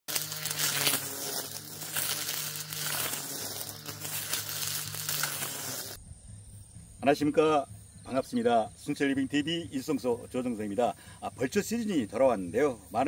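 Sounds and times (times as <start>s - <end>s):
crackling of shredded weeds: 0.0s - 6.0s
string trimmer motor whining: 0.0s - 6.0s.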